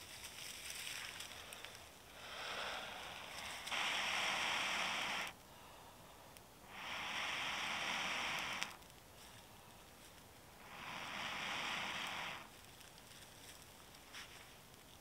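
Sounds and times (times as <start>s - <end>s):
fire crackle: 0.0s - 15.0s
breath blowing on tinder: 1.3s - 5.4s, 6.6s - 9.4s, 10.6s - 12.7s.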